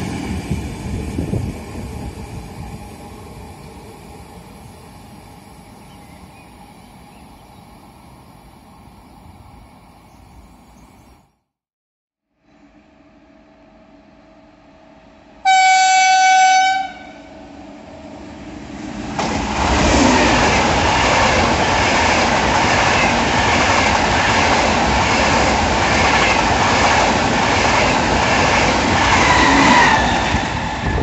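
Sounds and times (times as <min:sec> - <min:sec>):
train rushing past: 0:00.0 - 0:10.7, 0:12.5 - 0:31.0
train horn blast: 0:15.4 - 0:17.6.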